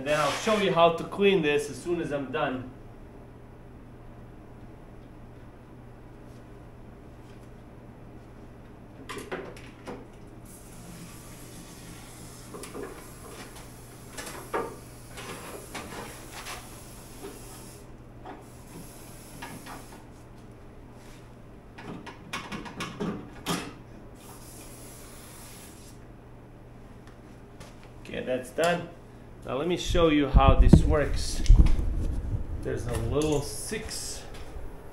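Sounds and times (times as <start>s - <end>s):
spray hissing from hose: 10.5s - 14.1s, 14.7s - 17.9s, 24.2s - 26.0s.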